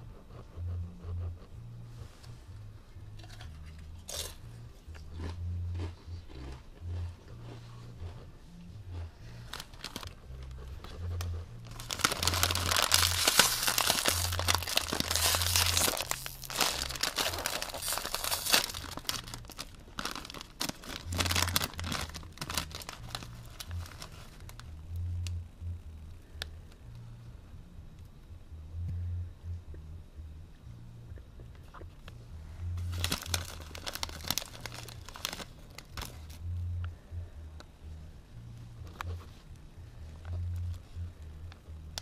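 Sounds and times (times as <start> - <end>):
chip bag crinkling and tearing: 9.5 - 10.2, 11.6 - 24.7, 32.8 - 36.4.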